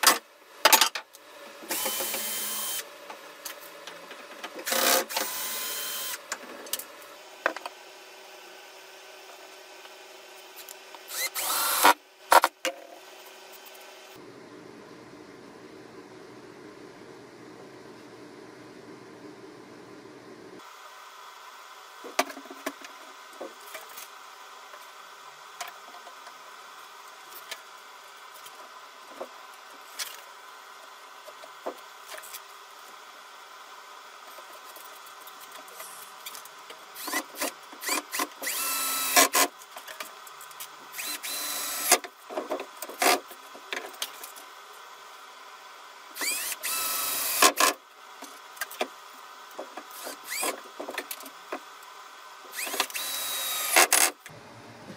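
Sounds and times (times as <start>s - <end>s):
cordless drill whining: 1.7s - 2.8s, 4.7s - 6.2s, 11.1s - 12.0s, 37.0s - 39.4s, 41.0s - 42.0s, 46.2s - 47.5s, 49.9s - 50.6s, 52.5s - 54.0s.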